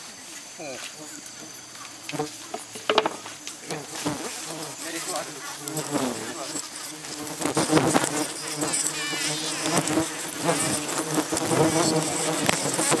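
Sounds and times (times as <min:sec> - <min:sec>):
bees buzzing loudly: 0:01.4 - 0:13.0.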